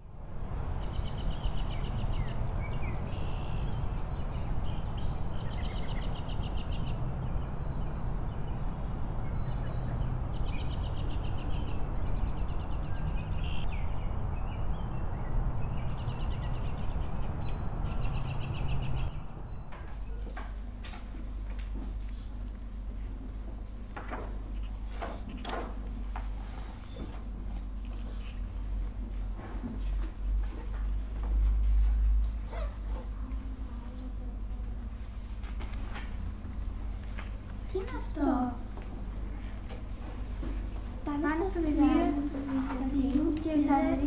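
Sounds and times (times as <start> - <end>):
birds chirping and trilling: 9.3 - 44.0
background hiss and hum: 19.4 - 44.0.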